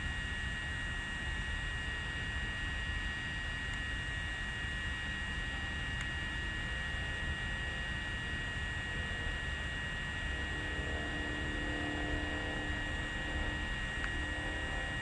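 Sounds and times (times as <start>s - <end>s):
faint lower tone: 9.1s - 15.0s
high whining tones: 9.8s - 15.0s.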